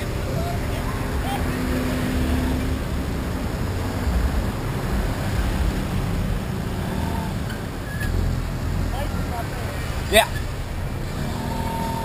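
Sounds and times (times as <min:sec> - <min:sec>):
wind and road noise: 0:00.0 - 0:12.0.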